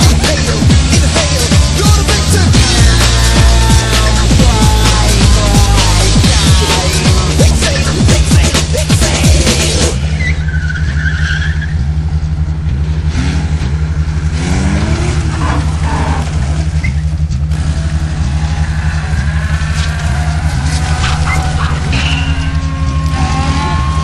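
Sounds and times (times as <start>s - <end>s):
car engine running: 0.0s - 24.0s
tire squeal: 10.0s - 24.0s.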